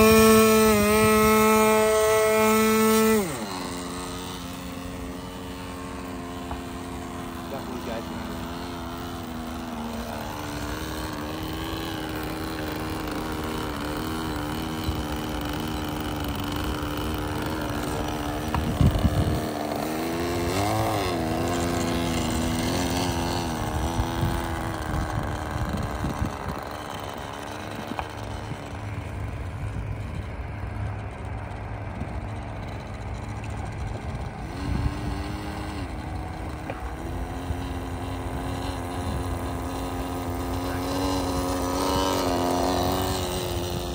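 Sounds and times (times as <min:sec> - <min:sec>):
model plane engine running: 0:00.0 - 0:43.9.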